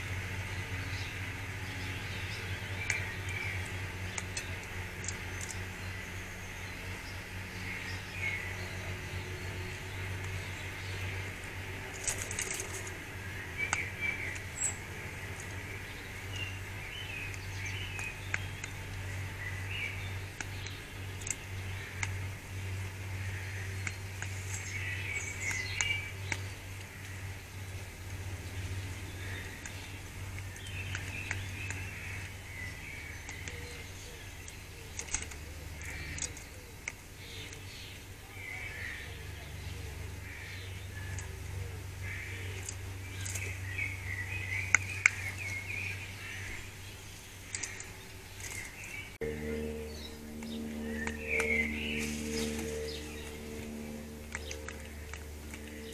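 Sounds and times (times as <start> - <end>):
steady low hum: 0.0 - 55.9
bird pecking wire feeder: 11.8 - 37.8, 46.4 - 55.9
bird chirps: 42.4 - 55.9
sharp clicks: 49.4 - 55.9.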